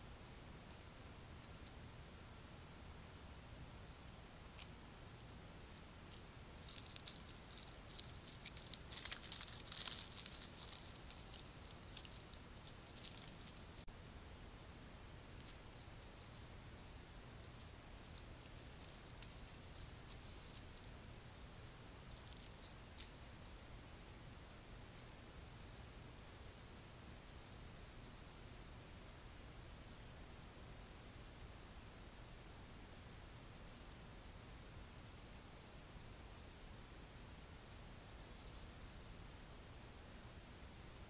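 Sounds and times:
rustling in leaf litter: 4.6s - 13.9s.

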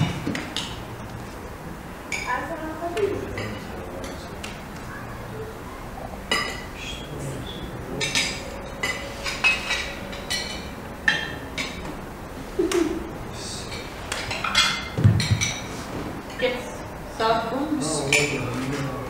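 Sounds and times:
cutlery clinking on plates: 3.3s - 4.6s, 6.3s - 6.8s, 8.0s - 12.0s, 13.7s - 16.4s.

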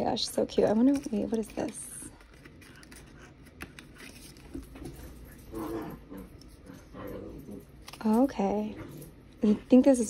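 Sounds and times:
paper rustling: 0.5s - 5.3s.

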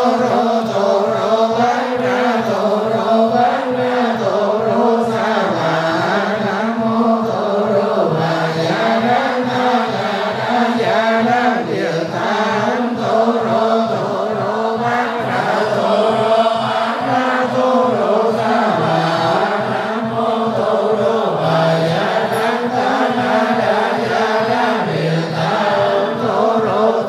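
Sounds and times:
monks chanting: 0.0s - 27.0s
regular rhythmic beat: 0.4s - 27.0s.

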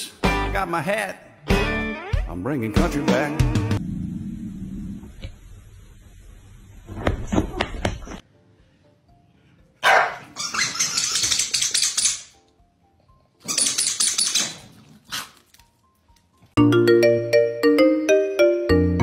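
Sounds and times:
faint background music: 8.2s - 16.6s
bright marimba-like tune: 16.6s - 19.0s.

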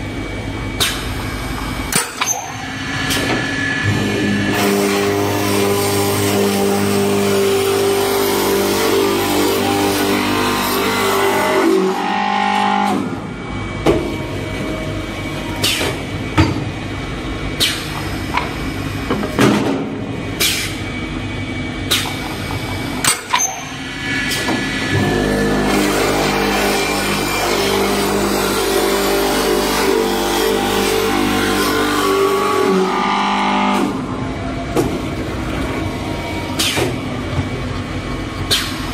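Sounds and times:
wood lathe machine hum: 2.7s - 13.5s, 23.8s - 34.4s
lathe cutting wood: 3.8s - 12.9s, 24.0s - 33.8s.

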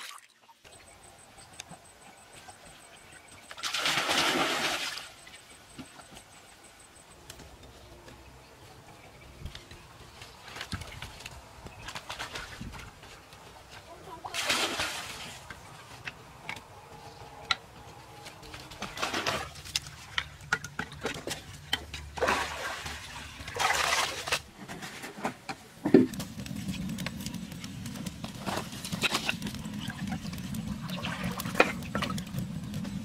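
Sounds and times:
water splashing: 0.0s - 0.6s, 3.4s - 5.4s, 14.2s - 15.5s, 22.2s - 24.5s, 30.8s - 32.2s
wood fire crackling: 5.3s - 14.2s, 15.0s - 33.0s.

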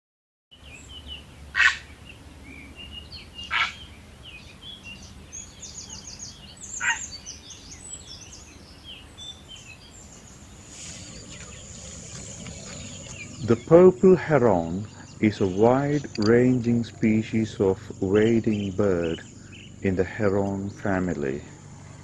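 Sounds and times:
small birds chirping and trilling: 0.5s - 22.0s
loud short bird calls: 3.4s - 3.9s, 5.8s - 7.2s, 10.2s - 20.0s.

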